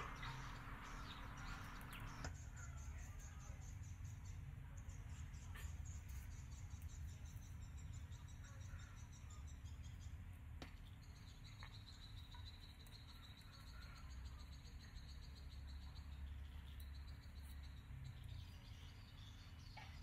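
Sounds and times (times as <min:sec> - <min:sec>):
faint low rumble: 0:00.0 - 0:03.6.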